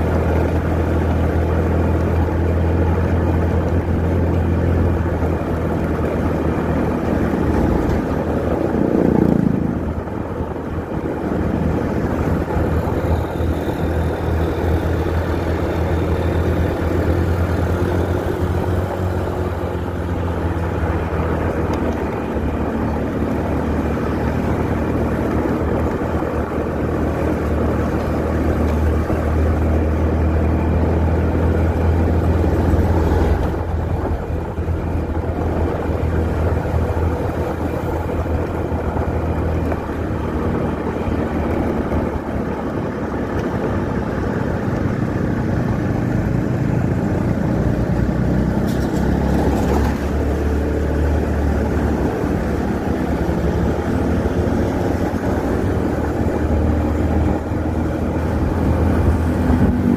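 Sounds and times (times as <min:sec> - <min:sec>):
motorcycle engine running: 0:00.0 - 0:59.9
passing traffic: 0:00.0 - 0:59.9
road noise: 0:00.0 - 0:59.9
wind noise: 0:00.0 - 0:59.9.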